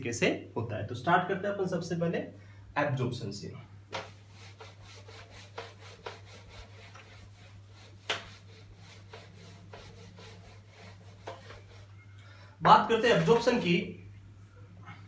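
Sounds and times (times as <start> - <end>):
eraser swishing on whiteboard: 3.9 - 12.0.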